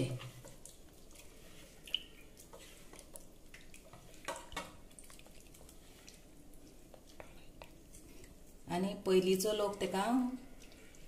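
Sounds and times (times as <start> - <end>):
hand squelching wet mixture: 0.0 - 8.6.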